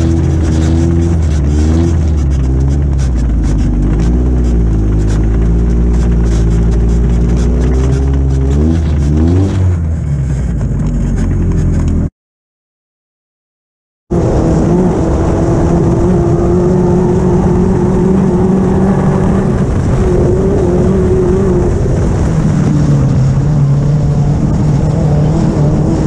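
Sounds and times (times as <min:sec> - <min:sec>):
buggy engine running: 0:00.0 - 0:12.1, 0:14.1 - 0:26.0.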